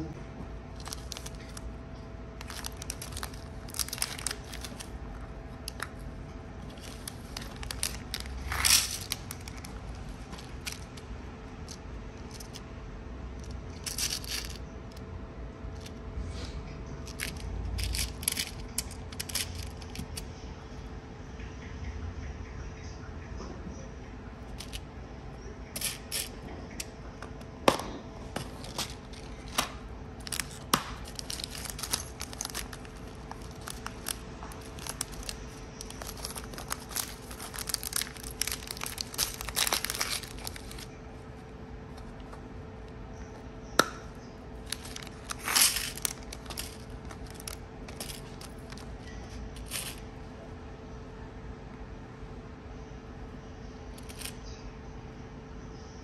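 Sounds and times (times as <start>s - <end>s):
plastic packets crinkling: 0.6s - 12.6s, 13.4s - 15.0s, 17.0s - 20.2s, 24.5s - 24.8s, 25.8s - 26.9s, 28.3s - 42.4s, 43.8s - 50.0s
plastic boxes clicking: 44.7s - 48.9s.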